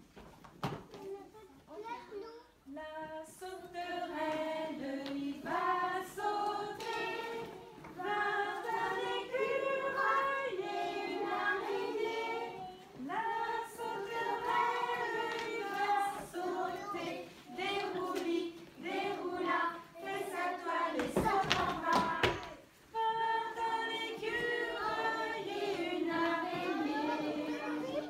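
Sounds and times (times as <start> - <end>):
children and women singing: 2.6 - 28.0.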